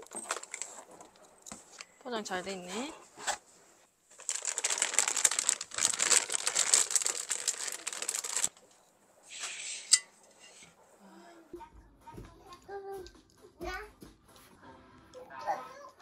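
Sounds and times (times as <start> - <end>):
packaging crinkling and rustling: 0.0 - 1.9, 4.1 - 8.8.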